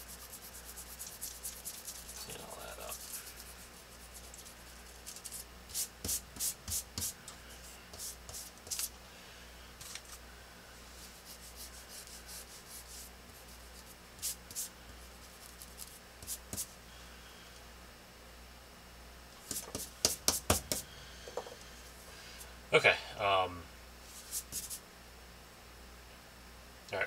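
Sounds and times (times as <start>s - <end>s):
pen scratching on paper: 0.0s - 7.1s.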